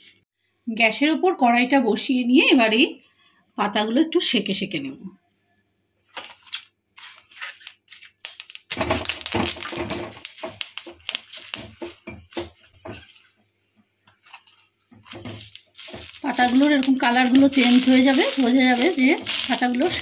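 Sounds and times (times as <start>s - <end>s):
leaf rustling and scraping on pan: 7.0s - 13.5s, 14.1s - 20.0s.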